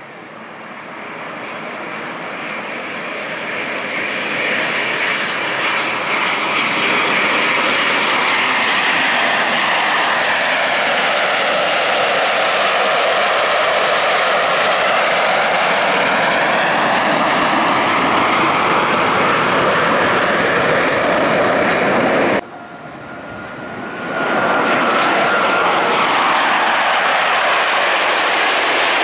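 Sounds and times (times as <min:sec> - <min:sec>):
faint high jet whine: 0:00.0 - 0:29.0
jet engines roaring: 0:00.0 - 0:29.0.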